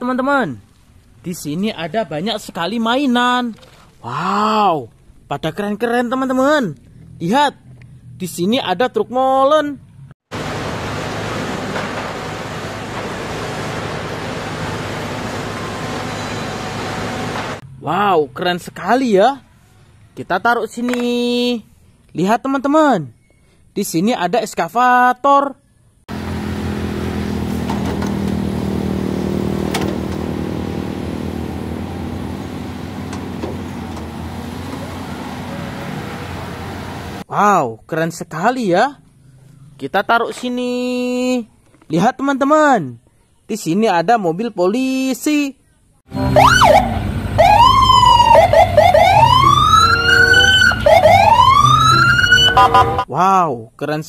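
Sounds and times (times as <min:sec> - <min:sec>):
excavator diesel engine running: 0:10.3 - 0:17.6, 0:26.1 - 0:37.2, 0:46.1 - 0:53.0
police car siren wailing: 0:46.1 - 0:53.1
siren yelps: 0:46.1 - 0:53.1.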